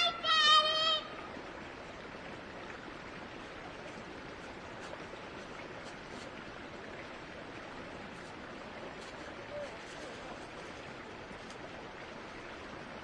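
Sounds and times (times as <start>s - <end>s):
stream rushing: 0.0s - 13.0s.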